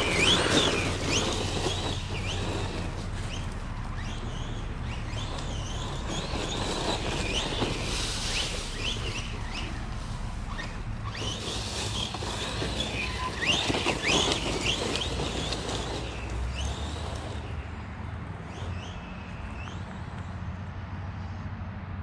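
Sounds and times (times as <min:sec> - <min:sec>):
electric motor whining: 0:00.0 - 0:17.6
steady low rumble: 0:00.0 - 0:18.2.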